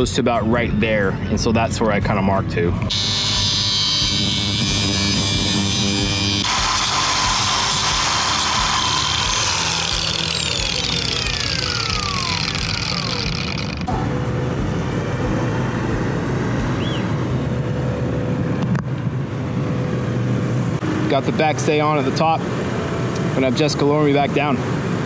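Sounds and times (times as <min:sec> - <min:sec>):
angle grinder whining: 0:02.9 - 0:17.6.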